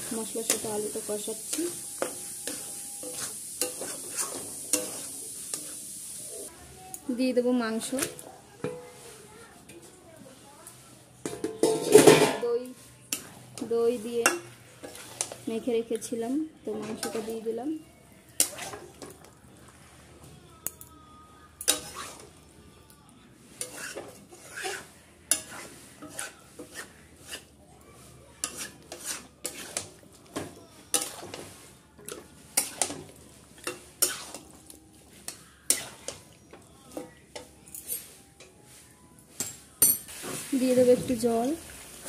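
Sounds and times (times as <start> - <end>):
metal spatula scraping a pan: 0.0 - 6.5, 11.2 - 17.6, 18.3 - 19.2, 21.6 - 22.4, 23.5 - 36.4.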